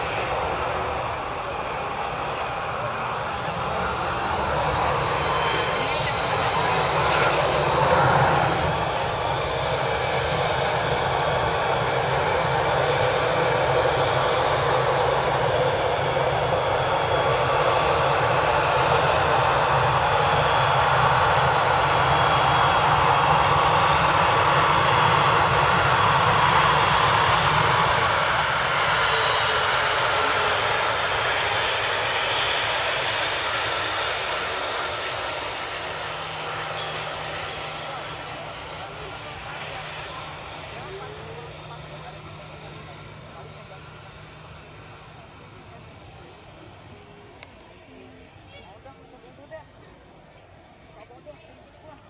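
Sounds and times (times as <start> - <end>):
jet engines rushing: 0.0 - 52.0
thin high engine whine: 0.0 - 52.0.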